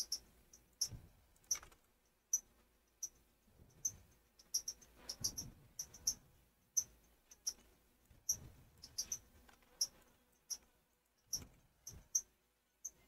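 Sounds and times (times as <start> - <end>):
soft low thumps: 0.8 - 1.3
mouse and keyboard clicks: 0.8 - 1.9.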